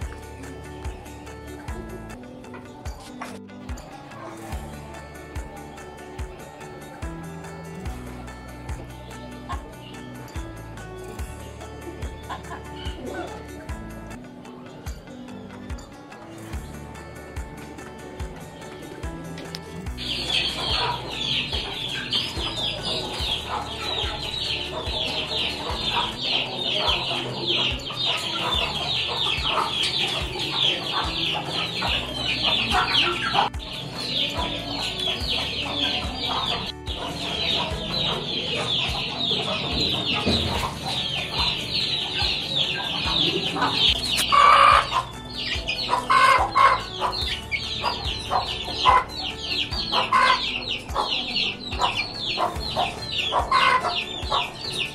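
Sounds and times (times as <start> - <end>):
chicks peeping: 19.5 - 54.9
hen clucking: 19.5 - 54.9.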